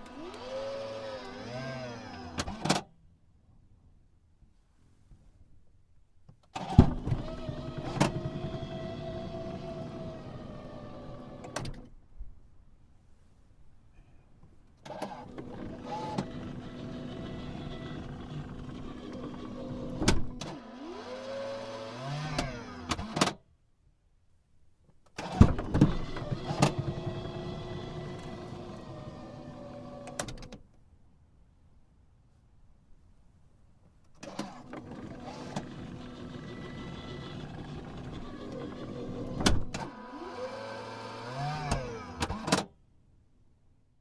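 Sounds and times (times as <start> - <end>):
power window motor whining: 0.0 - 2.8, 6.6 - 11.9, 14.8 - 23.3, 25.2 - 30.5, 34.2 - 42.6.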